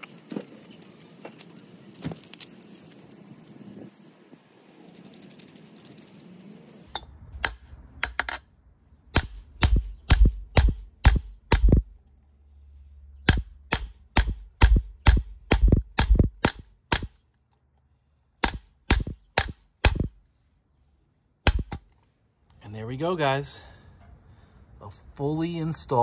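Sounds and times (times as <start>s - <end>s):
hammer striking bearing driver: 13.2s - 17.1s.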